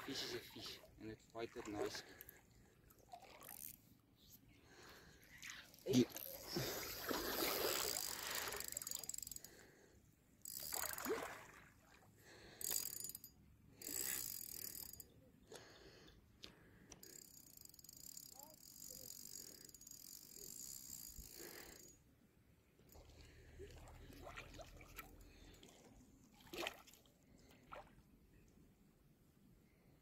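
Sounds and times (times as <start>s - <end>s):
fishing reel being cranked: 3.2s - 3.9s, 5.5s - 9.7s, 10.4s - 11.2s, 12.6s - 15.1s, 16.9s - 22.0s.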